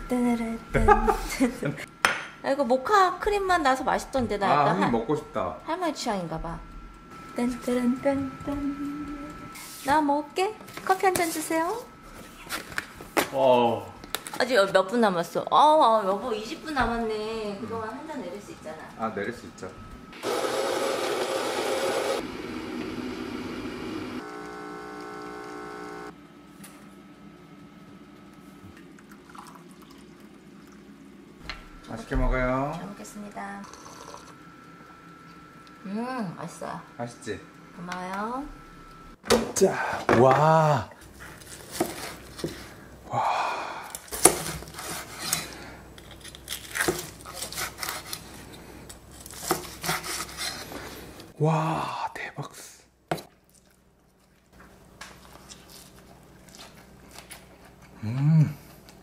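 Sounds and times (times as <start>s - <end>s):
electric coffee grinder: 20.2s - 26.2s, 33.5s - 34.4s
espresso machine pump hum: 20.2s - 26.2s
knife sawing through crisp skin: 46.2s - 48.3s, 49.2s - 50.7s.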